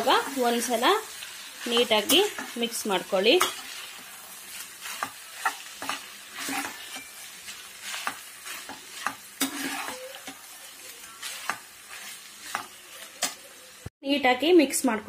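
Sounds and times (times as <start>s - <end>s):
ghee sizzling: 0.0s - 13.9s
spoon scraping a pan: 1.6s - 13.6s.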